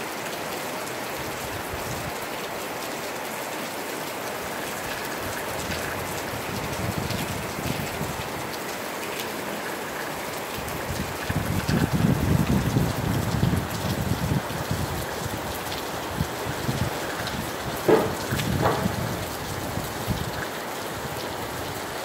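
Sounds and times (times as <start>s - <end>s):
rain hissing: 0.0s - 22.0s
low gusty rumbles: 10.8s - 20.4s.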